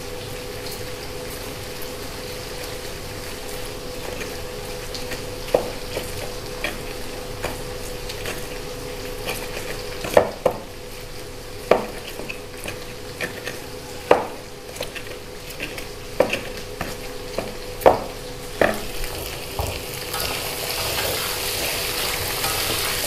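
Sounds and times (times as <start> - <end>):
food sizzling in a pan: 0.0 - 23.0
spatula knocking against pan: 9.2 - 10.7, 11.6 - 18.9.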